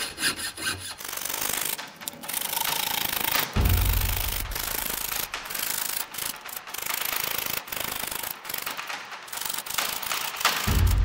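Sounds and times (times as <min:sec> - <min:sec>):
fine saw rasping through metal: 0:00.0 - 0:06.9.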